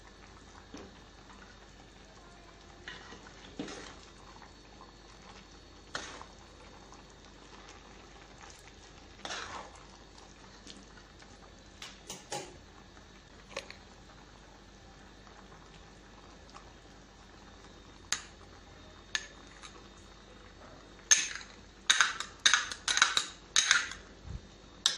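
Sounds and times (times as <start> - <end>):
spoon stirring food in a pot: 2.6 - 4.5, 5.1 - 12.6, 19.1 - 19.8, 21.0 - 24.1.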